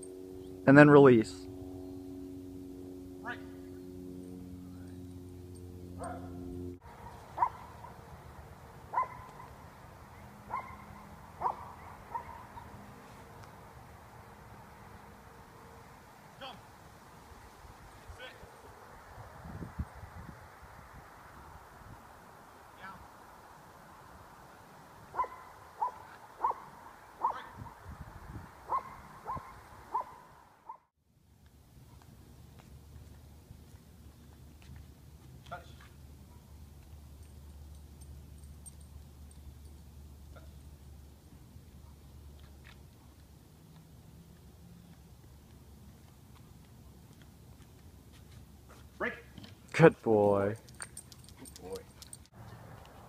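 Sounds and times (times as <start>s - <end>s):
dog barking: 6.0s - 6.4s, 7.0s - 8.1s, 8.9s - 9.6s, 10.5s - 12.8s, 25.1s - 27.6s, 28.7s - 30.8s.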